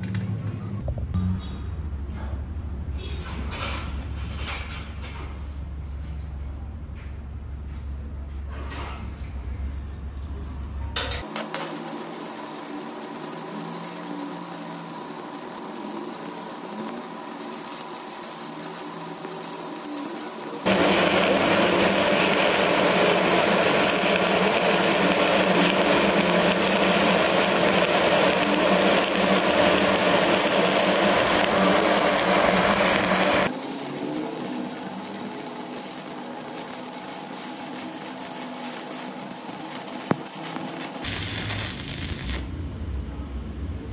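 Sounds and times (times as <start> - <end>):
welding arc crackling: 11.0 - 42.8.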